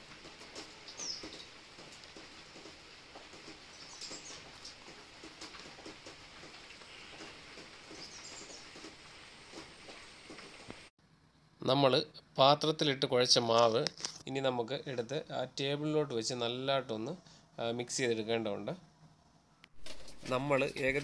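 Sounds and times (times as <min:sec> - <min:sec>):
hand mixing dough in metal bowl: 0:19.9 - 0:21.0.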